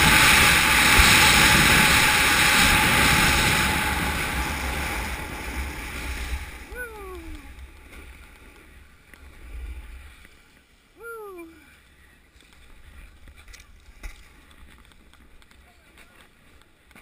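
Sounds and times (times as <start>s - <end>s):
wind rumble on microphone: 0.0s - 10.2s
person calling out: 6.7s - 7.5s, 11.0s - 11.7s.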